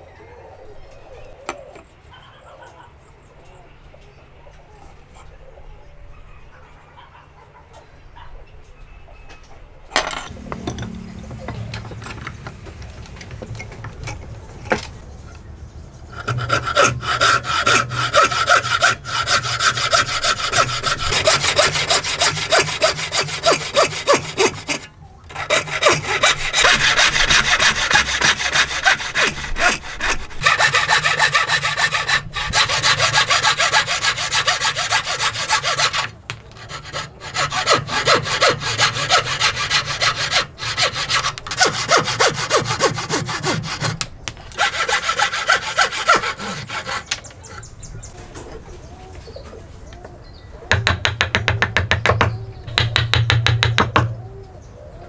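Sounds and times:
saw cutting wood: 10.3s - 15.0s, 16.1s - 47.7s.

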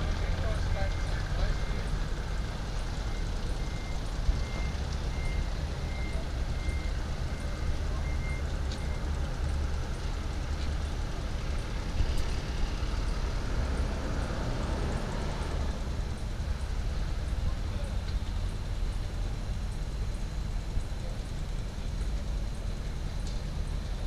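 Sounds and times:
diesel locomotive rumble: 0.0s - 24.0s
high electronic beep: 3.1s - 9.1s.

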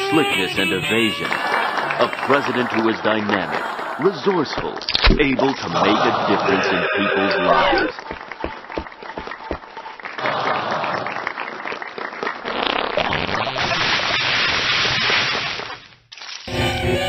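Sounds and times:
crowd clapping and cheering: 0.0s - 13.2s.

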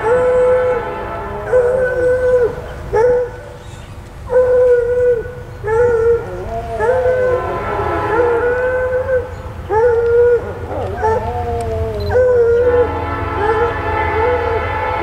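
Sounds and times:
locomotive air horn blasts: 0.0s - 2.8s, 7.1s - 9.4s, 12.4s - 15.0s.

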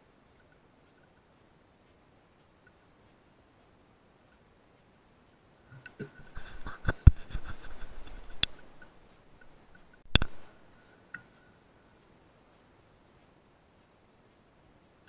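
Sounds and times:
faint high-pitched whine: 0.0s - 15.0s
sharp clicks and knocks: 5.8s - 10.5s.

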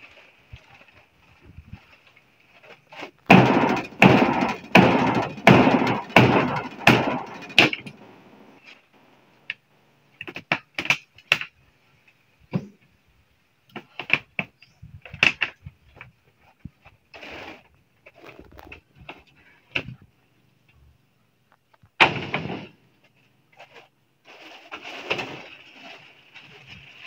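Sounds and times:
hammer striking wood: 3.3s - 8.0s.

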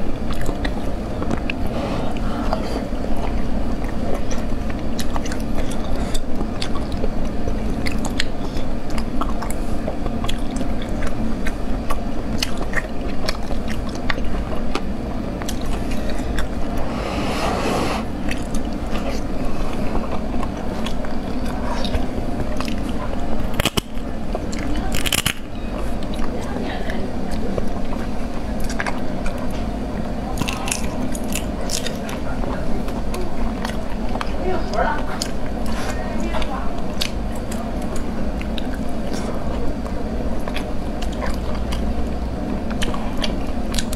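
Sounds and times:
person chewing and sucking: 0.0s - 26.3s, 30.2s - 34.4s, 36.8s - 43.9s.

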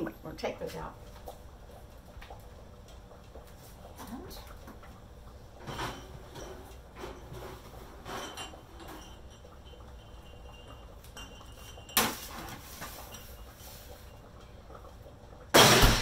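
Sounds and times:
glass jars clinking: 8.0s - 12.0s.

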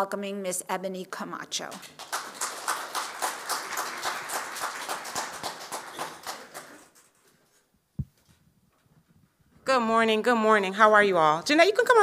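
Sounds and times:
audience applauding: 1.8s - 7.1s.

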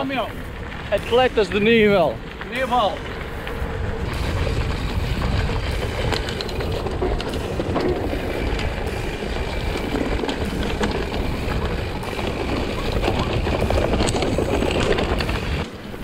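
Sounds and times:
bike clicks and rattles: 0.0s - 16.0s
tyres rumbling on dirt: 0.0s - 16.0s
wind noise on microphone: 0.0s - 16.0s.

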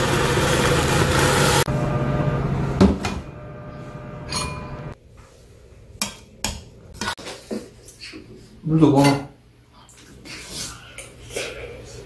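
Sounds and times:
steady hum: 0.0s - 5.9s.

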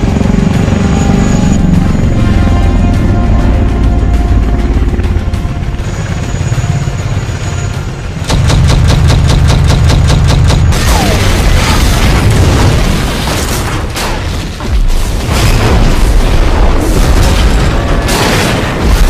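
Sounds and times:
explosion blasts and rumble: 8.2s - 19.0s.

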